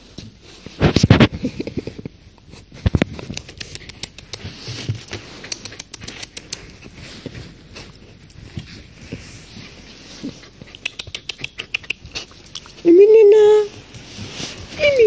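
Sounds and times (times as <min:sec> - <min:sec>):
clicks scratches and handling thumps: 0:00.2 - 0:09.3.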